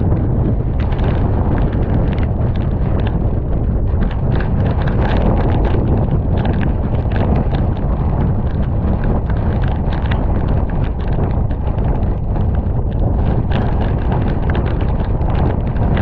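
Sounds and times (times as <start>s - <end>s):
rain pelting camera: 0.0s - 16.0s
wind buffeting microphone: 0.0s - 16.0s.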